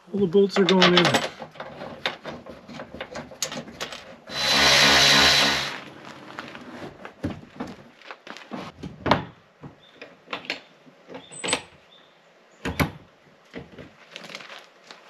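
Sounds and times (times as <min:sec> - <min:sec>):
metal clicks and knocks: 0:00.5 - 0:04.2
cordless electric ratchet running: 0:04.3 - 0:05.8.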